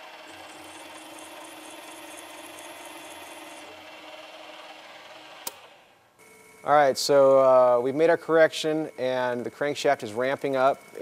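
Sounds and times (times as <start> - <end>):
drill cutting into metal: 0.0 - 6.0.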